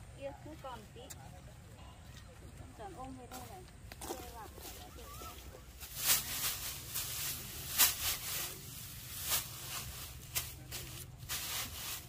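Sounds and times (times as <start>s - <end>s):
rice stalks rustling: 3.3s - 12.0s.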